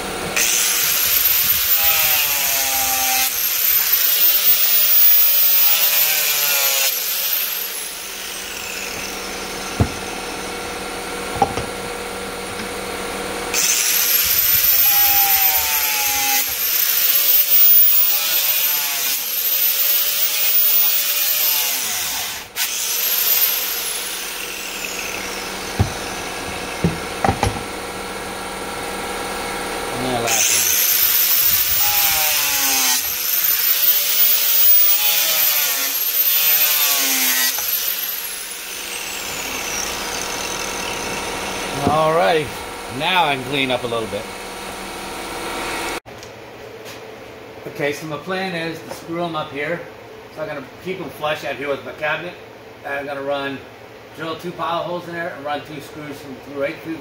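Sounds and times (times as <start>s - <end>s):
angle grinder cutting plastic pipe: 0.0s - 12.9s, 13.5s - 27.8s, 30.0s - 44.1s
short knocks: 9.7s - 10.1s, 25.7s - 27.7s.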